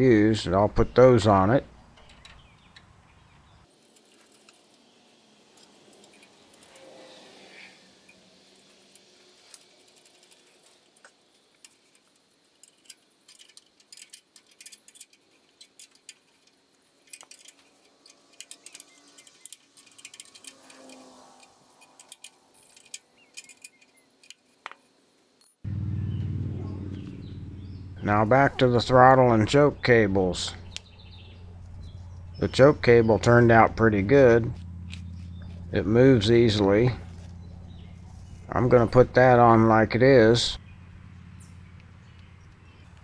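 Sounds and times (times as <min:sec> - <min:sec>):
metallic clinks of tools: 0:08.0 - 0:24.8.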